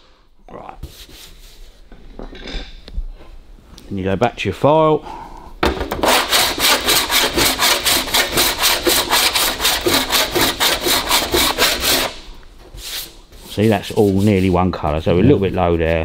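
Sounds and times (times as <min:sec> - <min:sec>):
file rasping across metal panel: 0:06.0 - 0:12.2.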